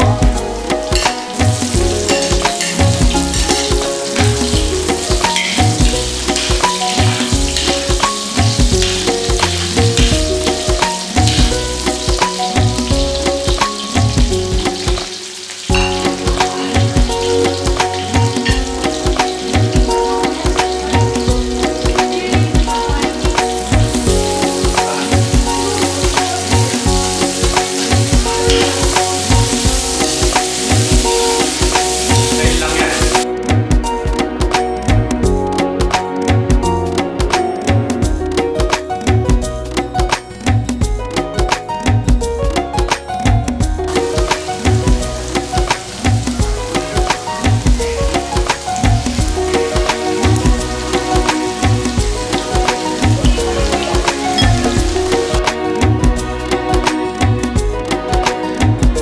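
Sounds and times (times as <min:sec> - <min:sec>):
garlic and onion sizzling in oil: 0:00.0 - 0:33.3, 0:43.6 - 0:59.0
background music with beat: 0:00.0 - 0:59.0
metal spatula stirring in wok: 0:01.0 - 0:04.6.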